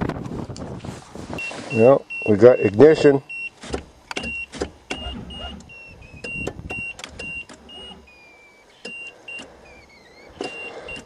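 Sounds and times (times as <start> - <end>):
car starter clicking: 3.5 - 11.0.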